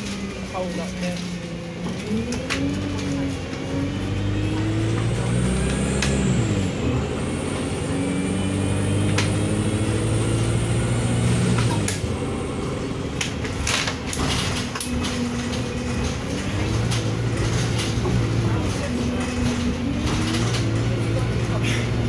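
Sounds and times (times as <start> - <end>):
bus diesel engine: 0.0 - 22.0
rattles and clicks: 13.2 - 22.0.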